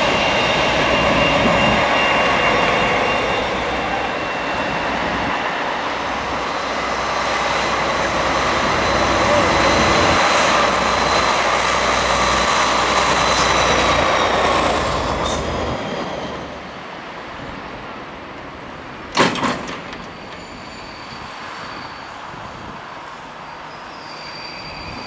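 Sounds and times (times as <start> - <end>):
diesel locomotive engine: 0.0 - 25.0
train coaches rolling past: 0.0 - 25.0
faint wheel squeal: 13.4 - 16.7, 20.0 - 22.6, 23.4 - 25.0.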